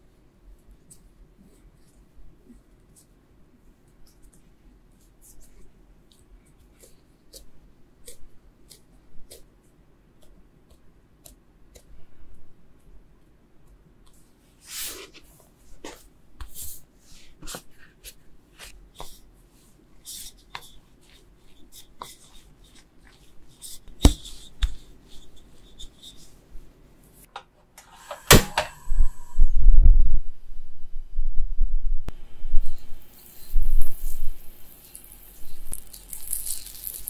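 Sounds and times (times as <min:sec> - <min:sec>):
hands pressing dough: 0:05.1 - 0:12.3, 0:19.9 - 0:26.2.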